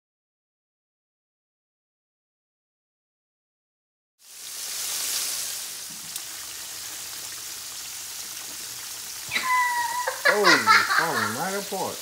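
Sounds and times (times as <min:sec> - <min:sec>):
fish deep-frying in oil: 0:04.2 - 0:12.0.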